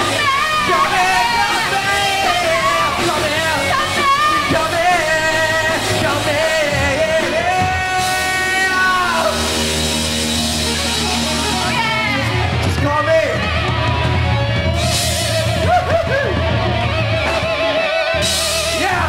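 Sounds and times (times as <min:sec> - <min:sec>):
man and woman singing: 0:00.0 - 0:09.5
rock band playing: 0:00.0 - 0:19.0.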